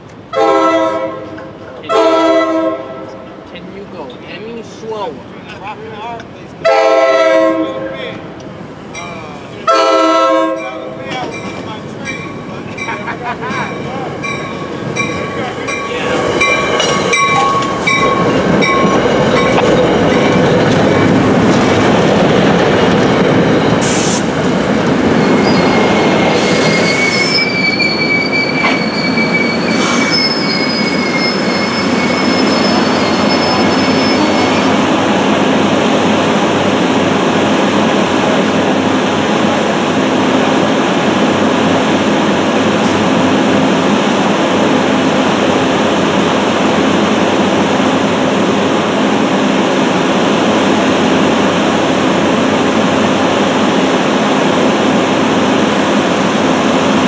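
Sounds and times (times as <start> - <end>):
train rumble: 1.0 - 57.0
train wheels clacking over rail joints: 11.0 - 25.0
high wheel squeal: 25.2 - 34.8.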